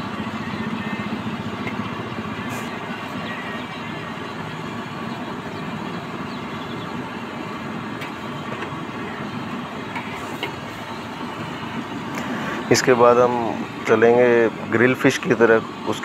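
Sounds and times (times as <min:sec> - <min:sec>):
deep-frying sizzle and bubbling: 0:00.0 - 0:16.0.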